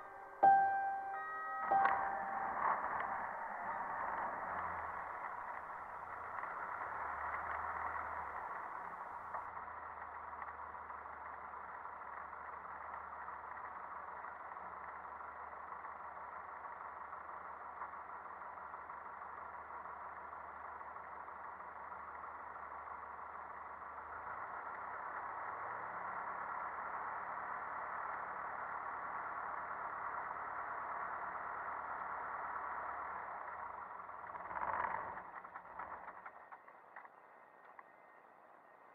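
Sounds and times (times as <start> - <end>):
aircraft engine muffled drone: 0.0 - 9.7.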